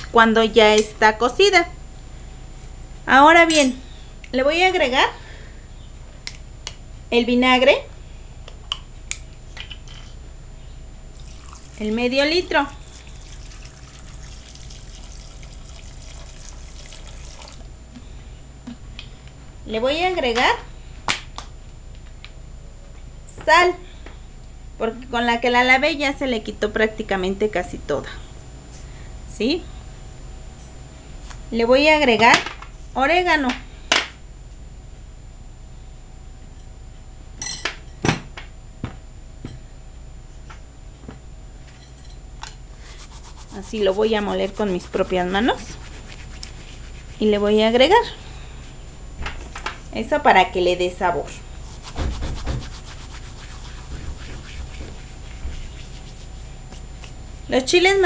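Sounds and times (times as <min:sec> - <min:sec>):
low hum: 0:00.0 - 0:38.0, 0:38.6 - 0:58.0
vinegar pouring into bowl: 0:11.1 - 0:17.7.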